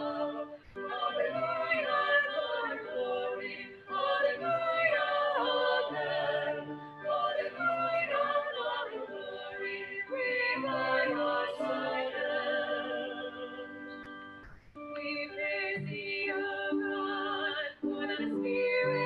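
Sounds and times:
group singing a hymn: 0.0 - 14.1, 15.2 - 19.0.

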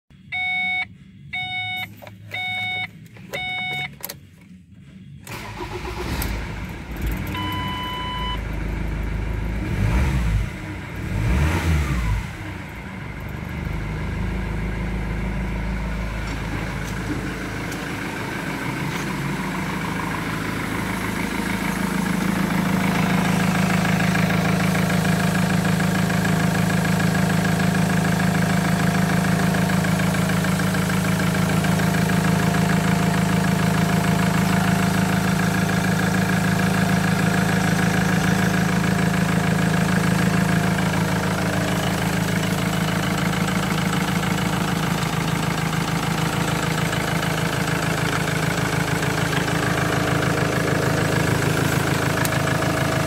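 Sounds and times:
dashboard warning beeps: 0.1 - 5.4, 7.3 - 8.4
diesel engine starting and idling: 0.2 - 53.0
engine revving: 5.2 - 7.7, 8.7 - 27.8.

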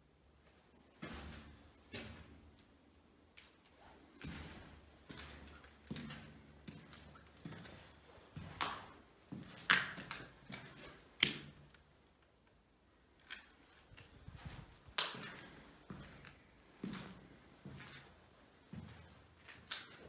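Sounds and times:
knocks and scuffs: 4.0 - 11.6.

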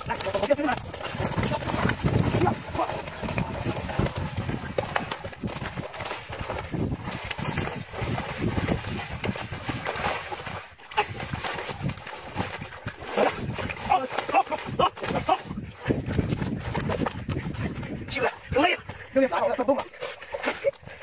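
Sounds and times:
net trap dragged over wet mud: 0.0 - 14.3
fish thrashing and slapping: 0.0 - 21.0.

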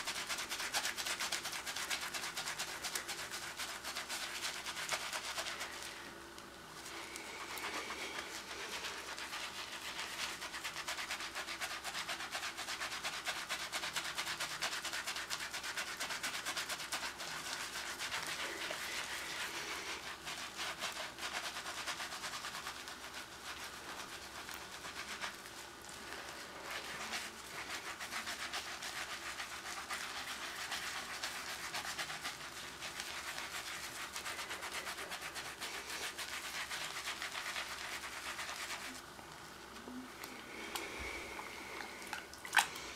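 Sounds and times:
hands being scrubbed: 0.0 - 6.1, 6.8 - 42.9.

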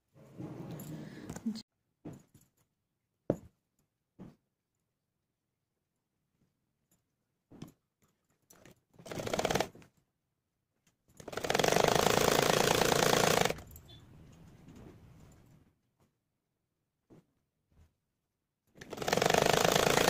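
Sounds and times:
sewing machine stitching: 9.0 - 9.8, 11.2 - 14.0, 18.8 - 20.0.

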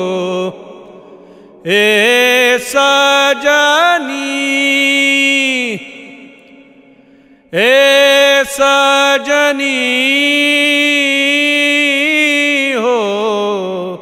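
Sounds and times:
man singing: 0.0 - 6.9, 7.5 - 14.0.

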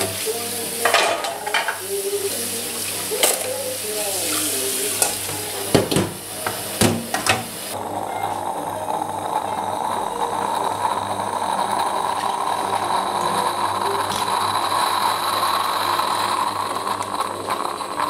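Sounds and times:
food sizzling in a frying pan: 0.0 - 18.0
utensils knocking against pan: 0.8 - 1.8.

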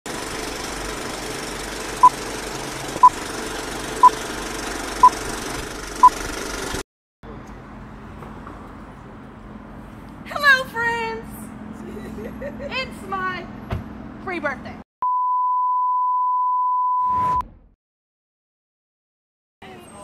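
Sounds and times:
mechanical running noise: 0.1 - 6.8
street ambience: 7.2 - 14.8.

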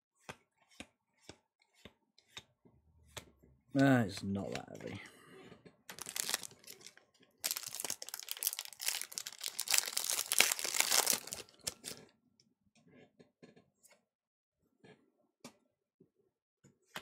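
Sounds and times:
foil wrapper crinkling and tearing: 5.9 - 12.0.

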